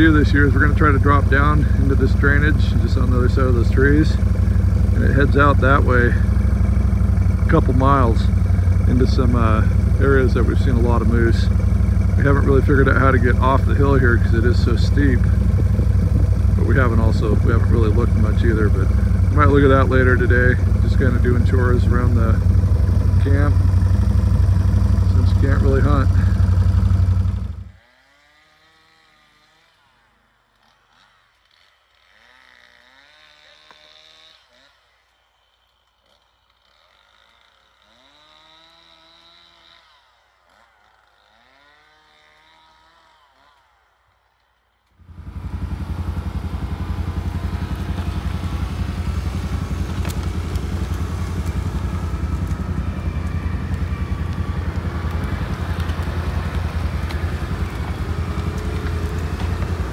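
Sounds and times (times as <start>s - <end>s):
atv engine running loudly: 0.0s - 29.7s, 31.9s - 34.7s, 36.1s - 43.5s, 45.0s - 59.9s
faint gliding calls: 45.2s - 59.9s.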